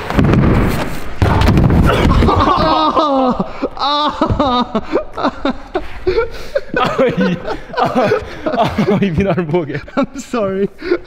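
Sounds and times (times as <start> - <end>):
bike crashing onto plywood ramp: 0.0 - 2.9
man groaning in pain: 1.9 - 6.9.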